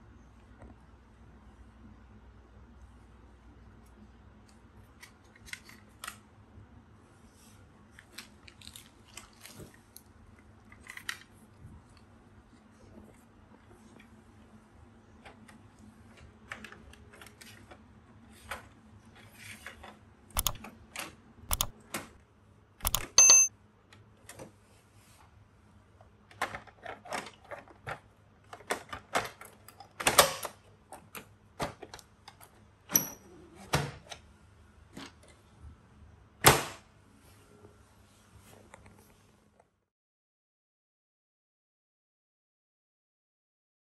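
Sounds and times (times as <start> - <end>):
sharp plastic clicks and knocks: 20.3 - 22.2.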